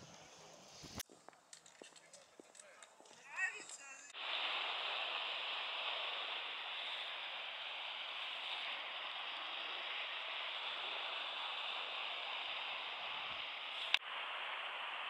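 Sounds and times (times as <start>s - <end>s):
sea water washing on shore: 4.2s - 15.0s.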